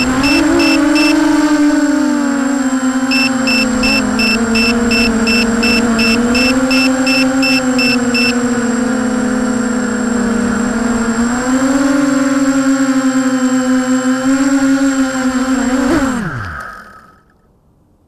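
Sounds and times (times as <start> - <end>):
high electronic beeps: 0.0 - 1.2, 3.1 - 8.4
quadcopter motors whining: 0.0 - 17.4.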